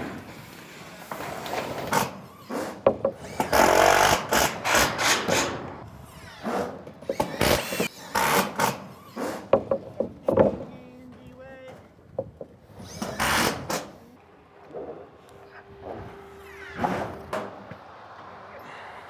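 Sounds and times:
sharp knocks: 2.8 - 3.6, 9.4 - 10.7, 12.1 - 12.6.

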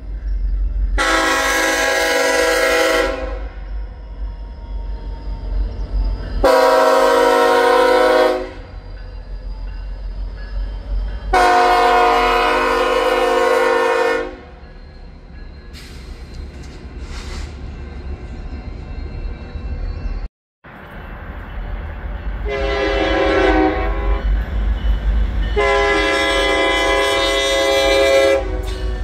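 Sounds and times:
low train rumble: 0.0 - 29.0
locomotive air horn: 1.0 - 3.6, 6.4 - 8.8, 11.3 - 14.5, 22.4 - 24.4, 25.6 - 28.8.

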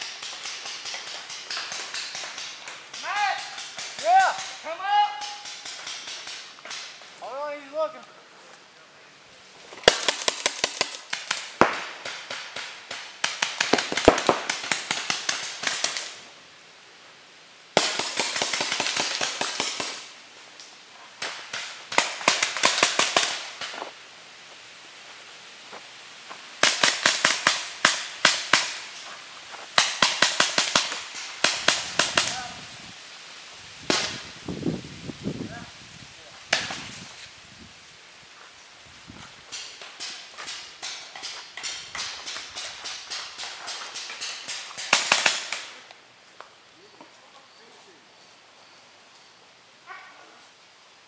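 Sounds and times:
paintball markers firing: 0.0 - 4.6, 9.8 - 16.1.

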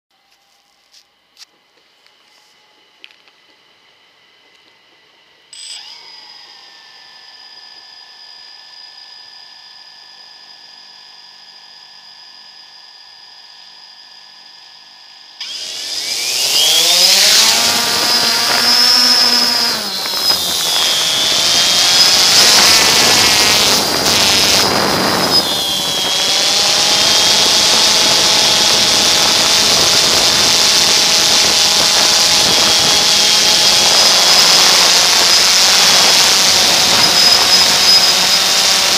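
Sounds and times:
faint steady whine: 0.1 - 38.9
drone propellers whirring: 4.2 - 10.1, 15.3 - 38.9.

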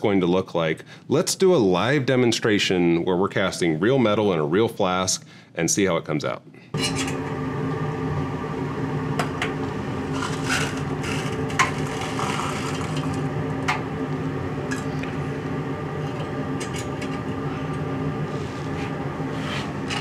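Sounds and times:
low machine hum: 6.6 - 20.0.

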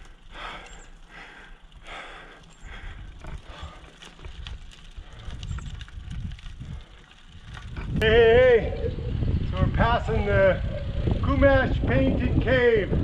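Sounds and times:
cyclist breathing hard: 0.0 - 8.0
wind buffeting microphone: 0.0 - 13.0.

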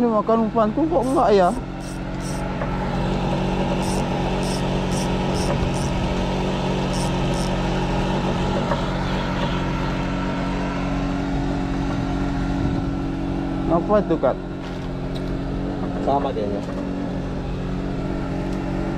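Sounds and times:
small engine running: 0.8 - 13.9.

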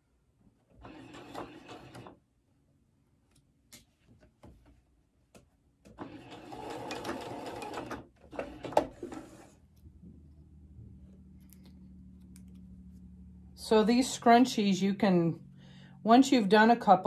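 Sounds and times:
sewing machine stitching: 0.7 - 2.2, 5.9 - 9.6.

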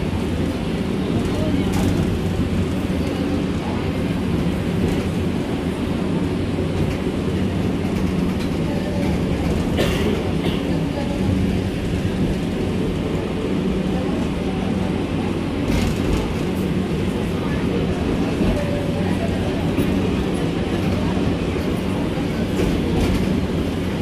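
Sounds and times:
wheels rumbling on rails: 0.0 - 24.0.

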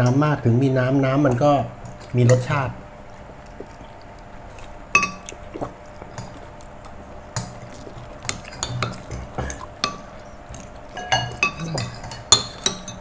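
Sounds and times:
cutlery clinking on plates: 11.0 - 13.0.

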